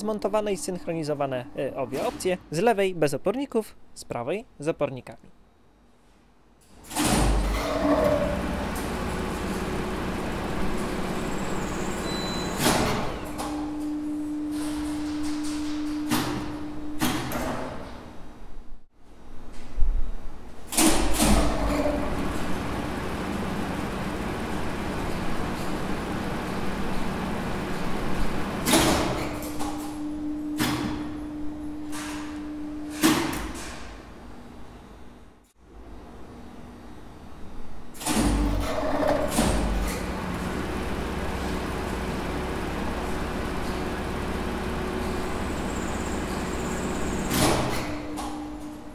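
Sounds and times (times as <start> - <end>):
hoist motor clunks: 6.8 - 17.9, 20.7 - 33.9, 38.0 - 48.8
hoist motor running: 6.9 - 13.8, 21.2 - 30.0, 38.0 - 48.7
contactor clacking: 39.5 - 47.7
low steady motor hum: 39.9 - 47.3.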